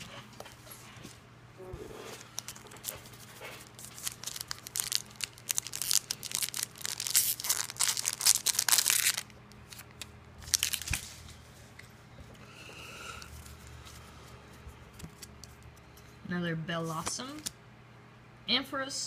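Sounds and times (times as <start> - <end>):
foil wrapper crinkling: 2.2 - 11.4.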